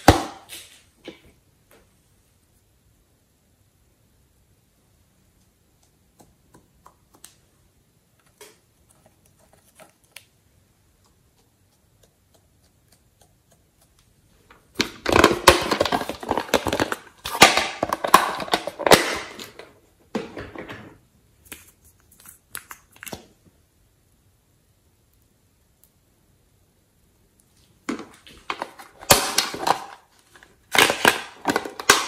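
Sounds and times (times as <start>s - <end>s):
crinkling handling noise: 8.2s - 11.5s, 14.0s - 23.4s, 27.5s - 32.0s.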